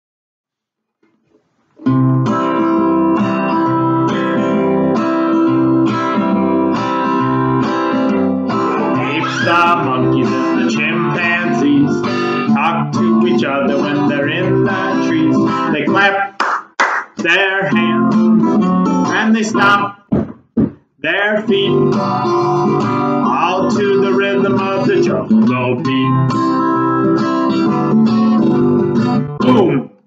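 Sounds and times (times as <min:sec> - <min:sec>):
strummed acoustic guitar: 0:01.8 - 0:16.4, 0:17.1 - 0:30.0
person singing: 0:08.5 - 0:16.4, 0:17.2 - 0:18.3, 0:19.0 - 0:20.0, 0:21.0 - 0:26.4, 0:29.4 - 0:29.9.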